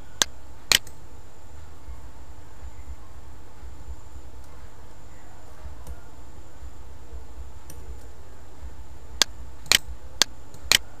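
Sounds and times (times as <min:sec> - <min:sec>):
steady low hum: 0:00.0 - 0:11.0
computer mouse clicking: 0:00.2 - 0:01.0, 0:09.2 - 0:10.9.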